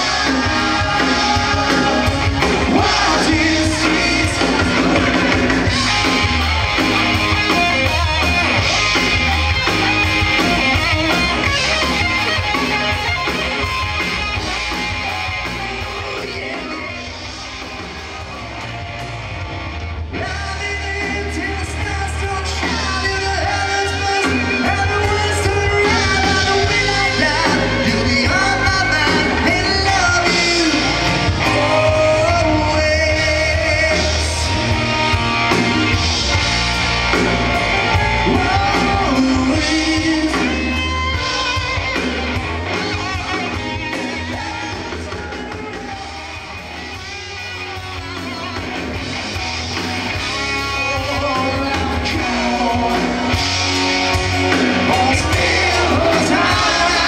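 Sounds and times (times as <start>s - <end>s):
man singing: 0.0s - 5.7s, 20.1s - 34.8s, 38.0s - 41.3s, 50.5s - 53.5s, 54.5s - 57.0s
rock band playing: 0.0s - 57.0s.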